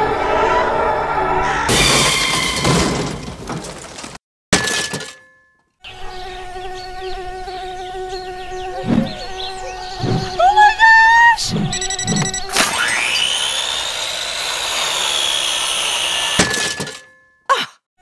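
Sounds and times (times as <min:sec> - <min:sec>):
drone propellers buzzing: 0:07.1 - 0:10.5, 0:11.4 - 0:16.4.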